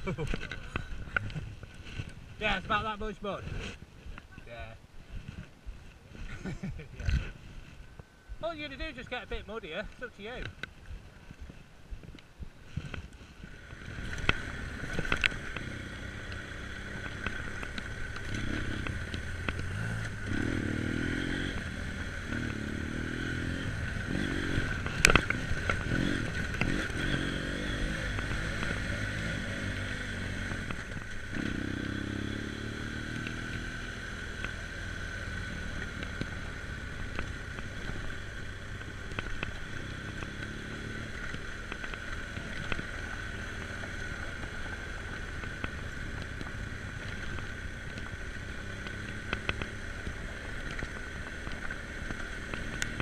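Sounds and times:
motorcycle jolting over bumps: 0:12.9 - 0:53.0
motorcycle engine accelerating: 0:13.4 - 0:53.0.

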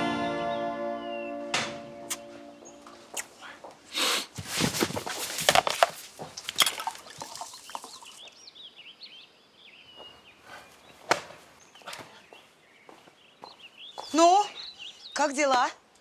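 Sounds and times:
small birds chirping: 0:06.2 - 0:16.0.

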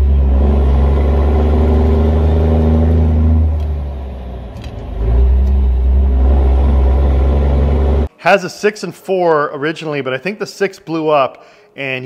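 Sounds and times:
diesel truck engine droning: 0:00.0 - 0:08.1.

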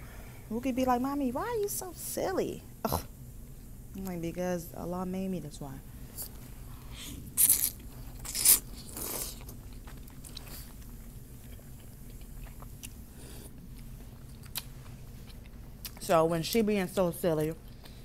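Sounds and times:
chewing with small clicks: 0:09.2 - 0:13.0, 0:13.7 - 0:16.7, 0:17.3 - 0:18.0.

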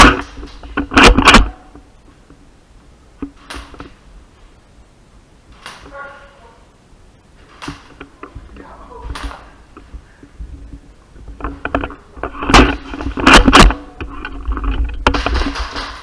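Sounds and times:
sharp knocks and clatter: 0:00.0 - 0:01.8, 0:09.1 - 0:16.0
low rumble of movement: 0:07.9 - 0:15.2.

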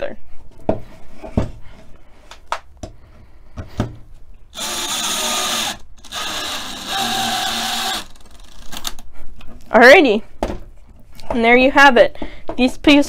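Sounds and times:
cordless drill driving screw into wood: 0:04.5 - 0:09.0.

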